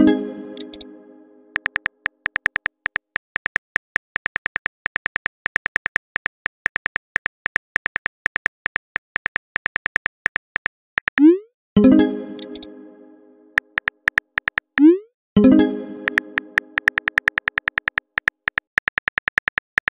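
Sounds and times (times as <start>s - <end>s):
phone keyboard typing clicks: 0.6s - 0.9s, 1.5s - 11.3s, 12.4s - 12.7s, 13.6s - 14.9s, 16.0s - 19.9s.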